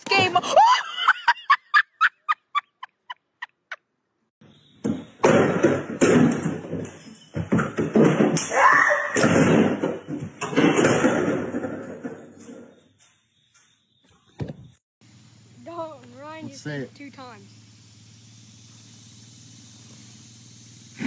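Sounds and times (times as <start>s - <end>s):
laughter: 0.4s - 3.8s
bangs and thuds on wooden door: 4.8s - 12.5s.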